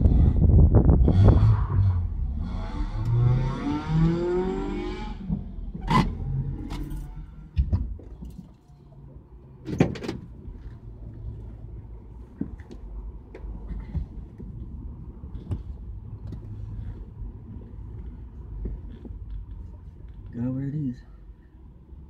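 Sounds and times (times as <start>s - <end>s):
car engine rising in pitch: 0.0s - 7.6s
clicks and knocks in car cabin: 7.5s - 8.6s.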